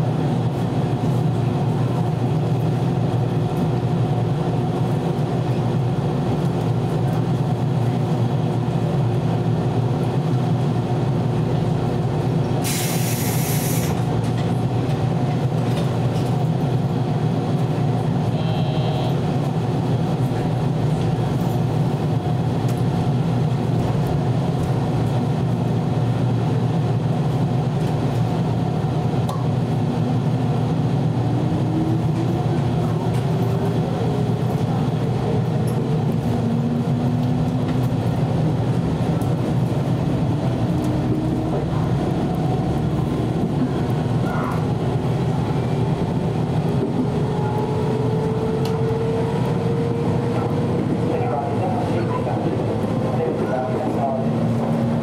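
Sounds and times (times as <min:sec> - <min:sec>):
electric train running hum: 0:00.0 - 0:55.0
burst of hiss: 0:12.7 - 0:14.0.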